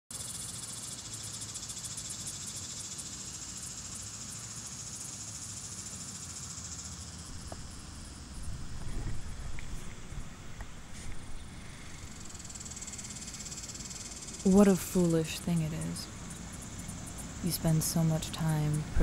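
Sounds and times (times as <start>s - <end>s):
insects buzzing: 0.1s - 19.0s
low wind rumble: 7.2s - 19.0s.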